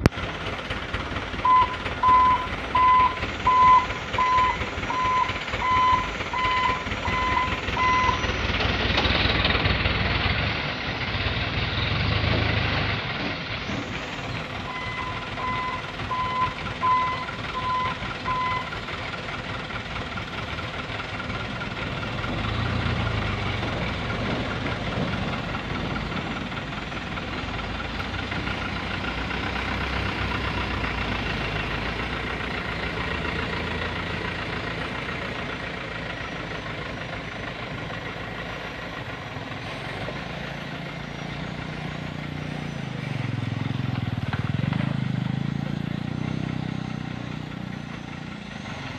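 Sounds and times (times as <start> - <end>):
diesel truck engines running: 0.0 - 48.9
reversing alarm beeping: 1.4 - 8.6, 14.6 - 18.8.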